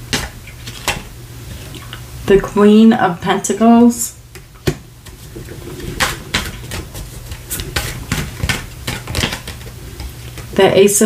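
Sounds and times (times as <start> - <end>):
cards snapping and clicking: 7.5 - 10.5.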